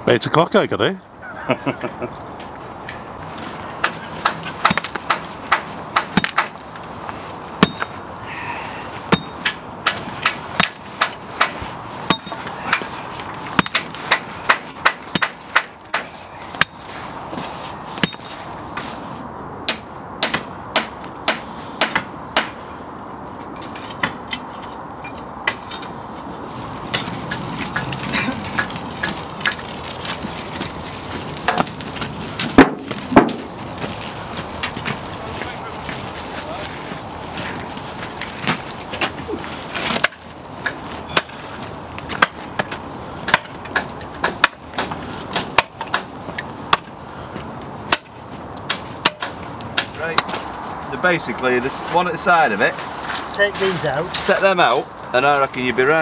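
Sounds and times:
hammer on metal: 19.7s - 22.6s.

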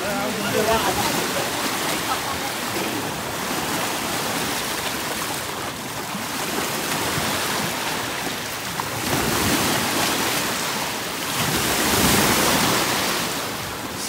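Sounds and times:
water sloshing around legs: 0.0s - 10.6s
small waves washing in: 0.0s - 14.0s.

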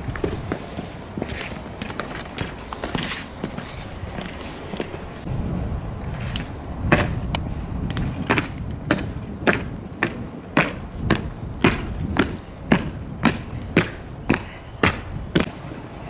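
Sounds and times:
boots marching on stone: 0.0s - 5.3s, 7.9s - 16.0s
low rumble: 5.1s - 9.4s.

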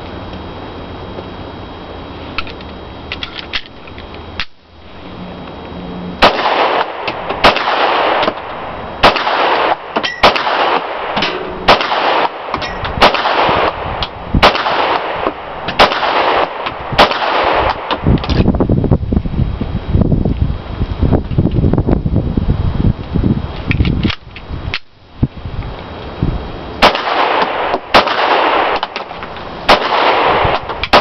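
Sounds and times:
loud rushing noise: 4.6s - 21.2s
pistol shots: 6.2s - 18.4s, 26.8s - 31.0s.

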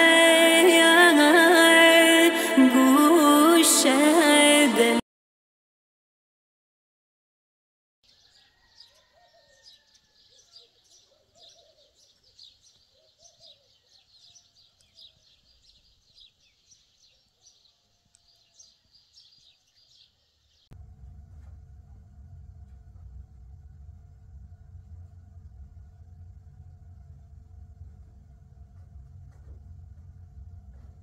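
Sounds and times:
small birds chirping: 8.0s - 20.7s
low bird calls: 8.1s - 20.1s.

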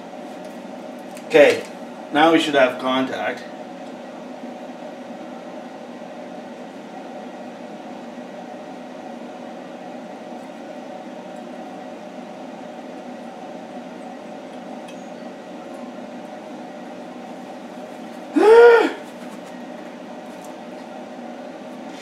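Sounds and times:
welder electrical hum: 0.0s - 22.0s.

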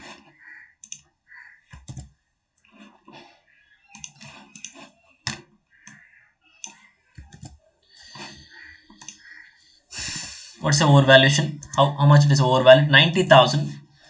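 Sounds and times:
keyboard typing: 0.0s - 1.0s, 1.7s - 2.1s, 3.8s - 9.3s, 11.4s - 12.0s
mouse clicking: 0.0s - 1.0s, 1.7s - 2.1s, 3.8s - 9.4s, 11.5s - 11.9s.

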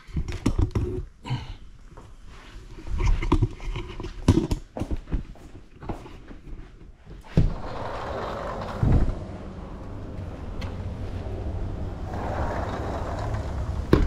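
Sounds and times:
footsteps on hard floor: 4.3s - 7.9s.

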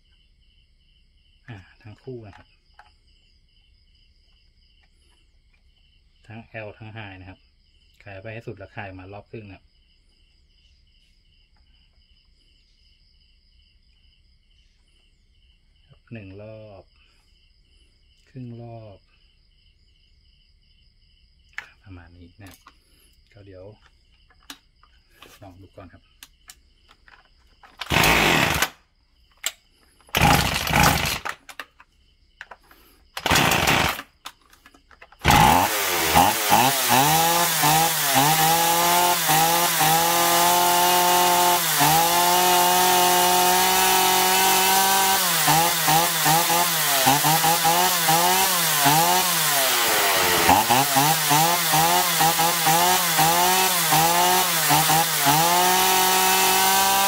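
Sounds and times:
chainsaw engine revving: 27.8s - 28.8s, 30.1s - 31.4s, 33.2s - 34.2s, 35.2s - 57.0s
starter cord pulls: 29.4s - 31.7s.

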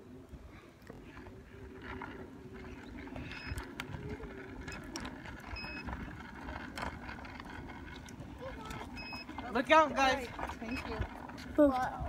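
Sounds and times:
wheels rolling over ground: 0.0s - 12.0s
wind buffeting microphone: 0.0s - 12.0s.

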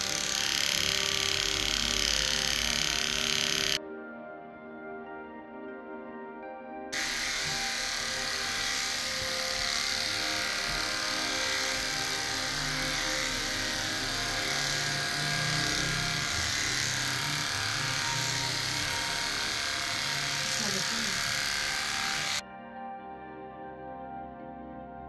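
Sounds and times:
electric clippers humming: 0.0s - 3.8s, 7.0s - 22.4s.

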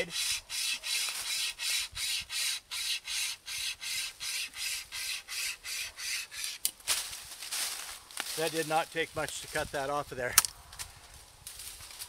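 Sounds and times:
cable saw rasping through wood: 0.0s - 6.6s.

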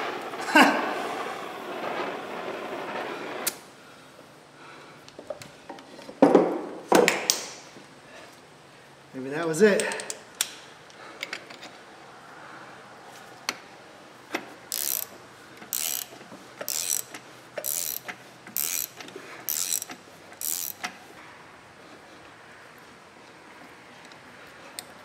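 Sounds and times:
ratchet wrench clicking: 14.7s - 21.0s.

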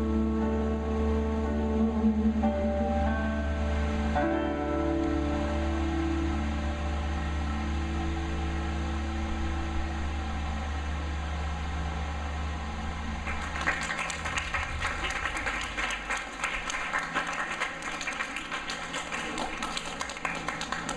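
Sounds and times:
low electrical hum: 0.0s - 20.9s
audience applause: 13.2s - 20.9s.

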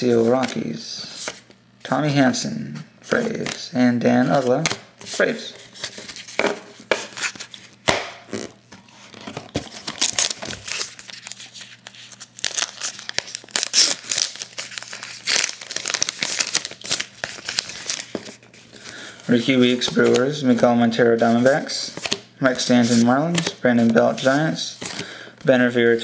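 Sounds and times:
wrapper tearing and crinkling: 9.7s - 18.4s.

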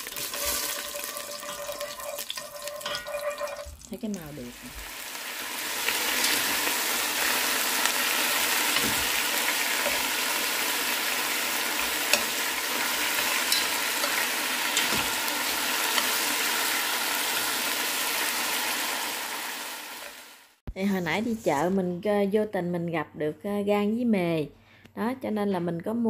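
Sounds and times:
chicken sizzling in a pan: 0.0s - 20.6s.

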